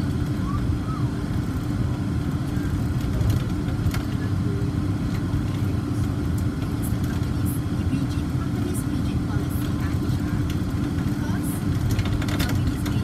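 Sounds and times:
monorail car rumble and hum: 0.0 - 13.0.

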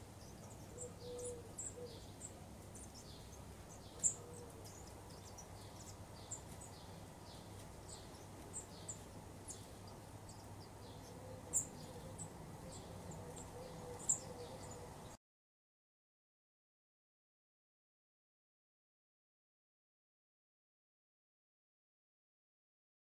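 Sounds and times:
low background hiss: 0.0 - 15.2
small birds chirping: 0.0 - 15.2.

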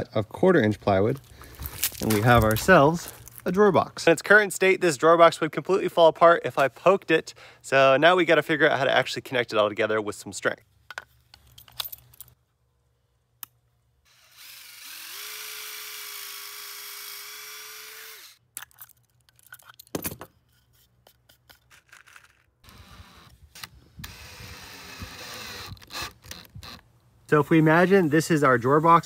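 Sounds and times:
clicks and knocks of clamp handling: 10.9 - 12.4
cordless drill boring into wood: 14.1 - 18.4, 22.6 - 26.8.

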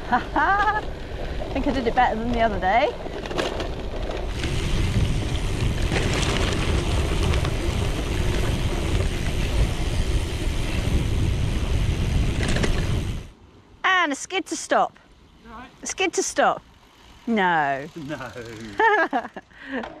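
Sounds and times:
bike rattling over bumps: 0.3 - 13.3, 16.6 - 19.9
tyre noise: 0.4 - 13.2
wind buffeting microphone: 0.5 - 13.3.

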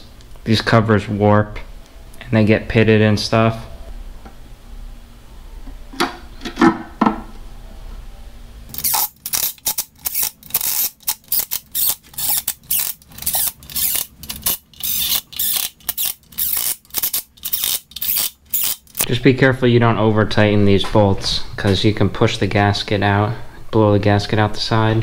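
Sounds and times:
cordless drill driving bolts: 8.8 - 19.0.

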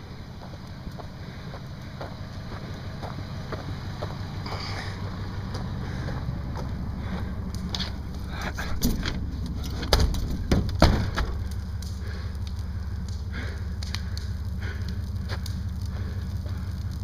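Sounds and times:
fire rumbling and crackling: 0.0 - 17.0
loud knocks: 9.8 - 11.4.

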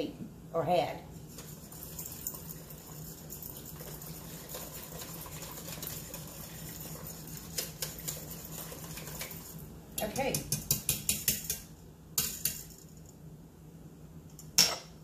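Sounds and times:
spatula stirring syrup in a pot: 1.2 - 9.8
spatula tapping a pot: 10.0 - 12.6.

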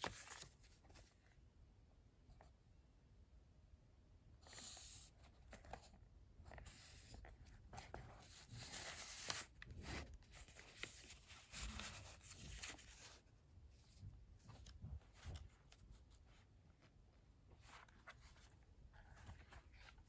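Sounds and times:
paper rustling and crinkling: 0.0 - 1.3, 4.4 - 16.5, 17.5 - 20.0.

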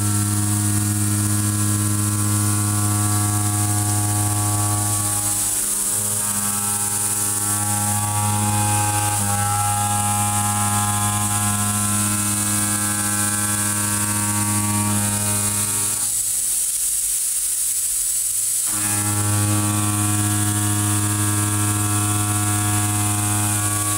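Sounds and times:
milling machine cutting steel: 0.0 - 16.6, 18.7 - 23.9.

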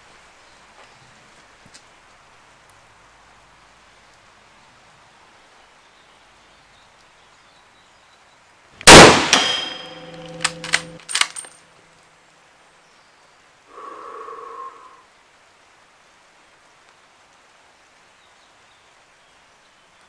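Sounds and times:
rifle shot with ringing tail: 8.8 - 11.4
rifle bolt metallic clicks: 8.8 - 11.6.

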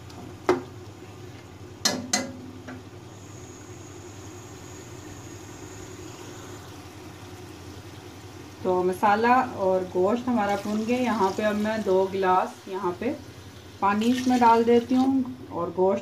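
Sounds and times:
meat frying: 0.0 - 16.0
stove humming: 0.0 - 16.0
ladle tapping on pot: 1.8 - 2.8.

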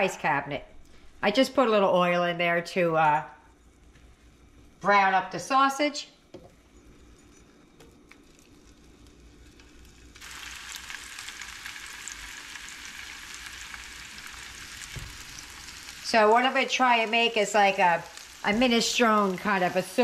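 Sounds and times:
sausage sizzling in oil: 6.9 - 20.0.

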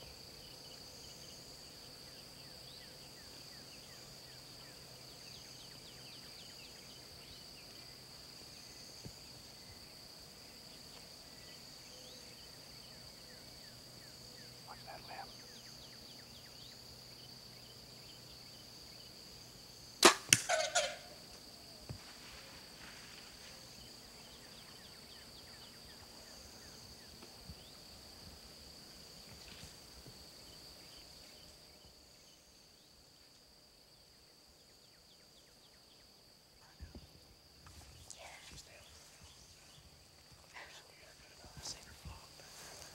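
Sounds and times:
insects droning: 0.0 - 42.9
bow string snap: 20.0 - 20.6.

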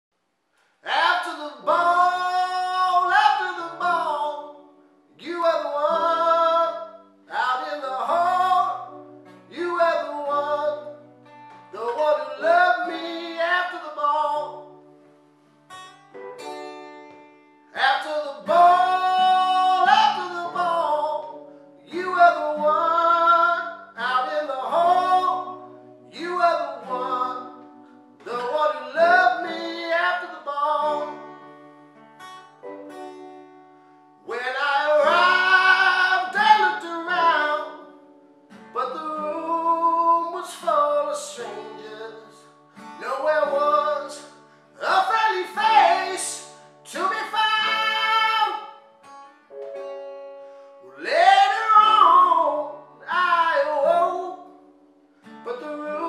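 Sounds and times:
man singing: 0.8 - 11.0, 11.7 - 14.7, 17.8 - 31.3, 34.2 - 38.0, 38.8 - 48.8, 50.9 - 54.5, 55.4 - 56.0
acoustic guitar strumming: 0.8 - 56.0.

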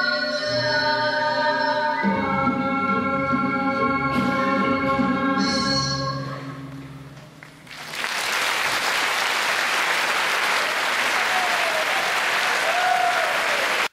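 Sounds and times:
audience applause: 7.6 - 13.9.

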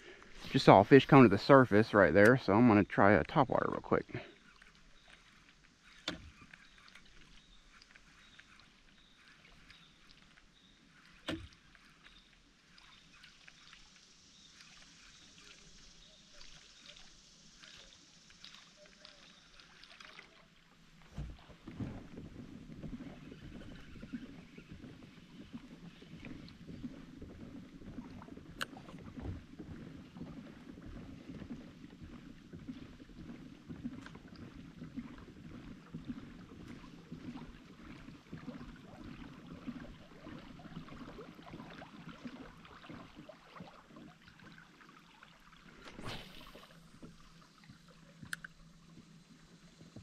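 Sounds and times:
pedal drive churning water: 0.0 - 50.0
brief swish: 45.8 - 46.8.

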